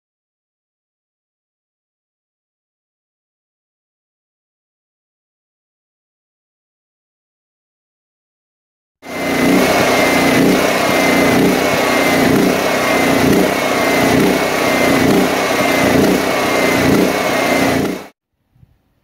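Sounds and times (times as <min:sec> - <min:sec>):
generator engine surging: 0:09.0 - 0:18.2.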